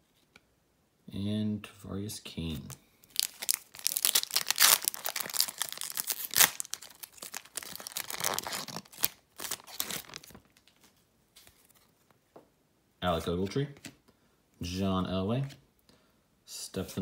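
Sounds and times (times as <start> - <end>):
foil wrapper crackling: 3.1 - 10.8.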